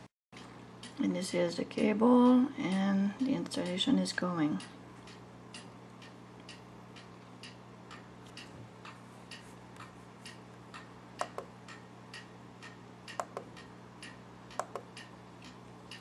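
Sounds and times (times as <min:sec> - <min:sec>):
low electrical hum: 0:00.0 - 0:16.0
clock ticking: 0:00.4 - 0:16.0
sharp clicks: 0:04.6 - 0:16.0.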